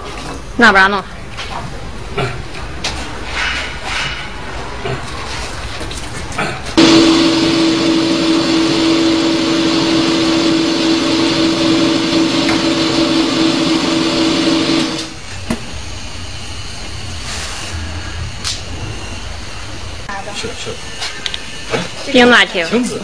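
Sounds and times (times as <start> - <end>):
hydraulic pump and motor humming: 6.8 - 16.2.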